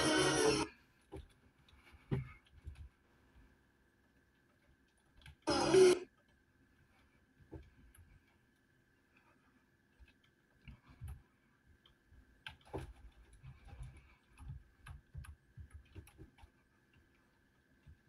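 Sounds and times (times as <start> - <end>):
keyboard typing: 10.0 - 18.0.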